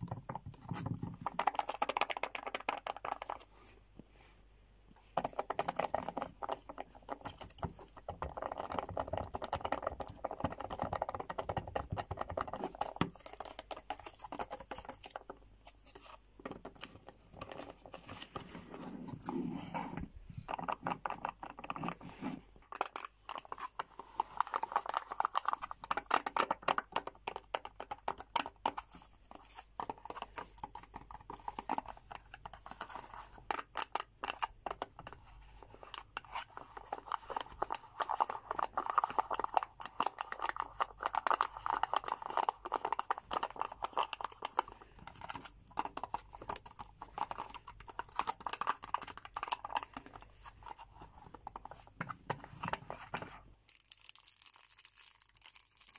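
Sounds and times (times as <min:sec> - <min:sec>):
fingernails tapping on plastic cups: 0:05.2 - 0:15.4, 0:25.9 - 0:28.8
plastic crinkling: 0:35.8 - 0:55.9.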